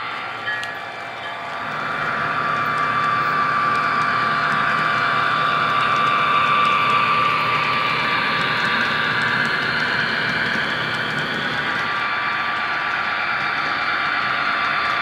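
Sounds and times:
model train hum with high whine: 0.0 - 15.0.

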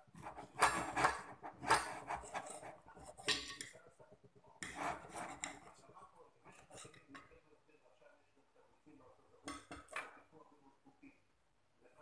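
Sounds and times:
knife scraping on ceramic plate: 0.2 - 3.6, 4.6 - 5.8.

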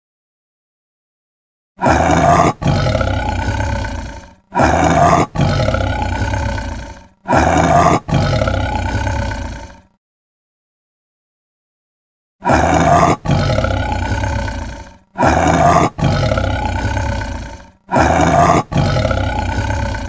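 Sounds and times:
tiger roaring: 1.8 - 10.0, 12.4 - 20.0.

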